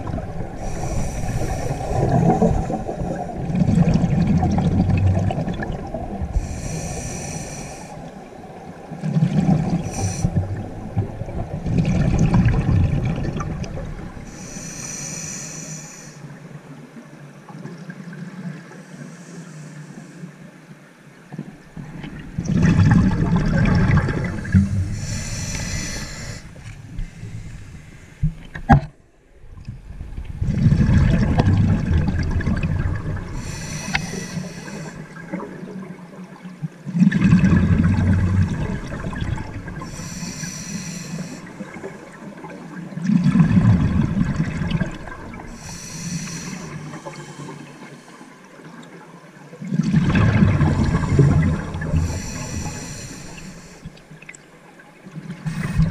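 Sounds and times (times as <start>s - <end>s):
exhaled bubbles rumbling: 0.0s - 14.3s, 21.4s - 28.8s, 29.4s - 40.1s, 41.2s - 47.3s, 49.6s - 54.3s, 55.1s - 55.9s
regulator inhalation hiss: 0.6s - 3.1s, 6.4s - 8.1s, 9.9s - 10.4s, 14.3s - 16.3s, 24.4s - 28.3s, 33.4s - 35.2s, 39.8s - 41.6s, 45.5s - 48.3s, 51.9s - 54.0s, 55.5s - 55.9s.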